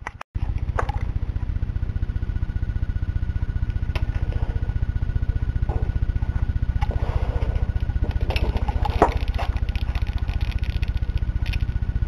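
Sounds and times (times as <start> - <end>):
electric arc pulsing buzz: 1.2 - 12.0
electric arc crackling snaps: 7.7 - 12.0.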